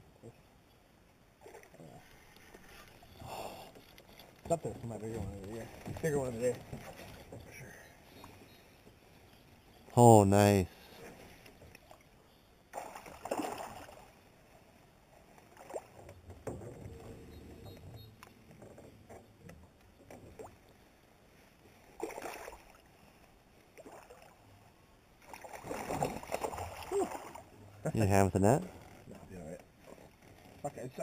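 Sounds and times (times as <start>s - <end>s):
water splashing against boat: 12.7s - 14.2s, 25.2s - 31.0s.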